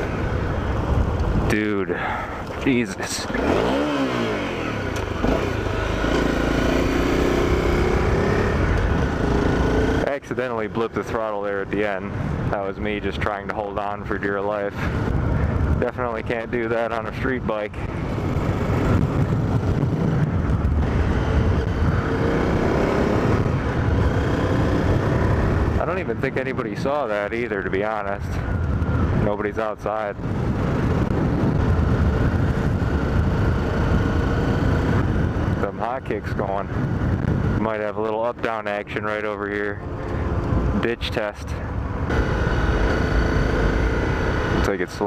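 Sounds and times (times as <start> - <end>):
motorcycle engine cruising: 0.0 - 45.0
motorcycle engine revving: 3.0 - 10.4, 17.8 - 26.2, 41.8 - 45.0.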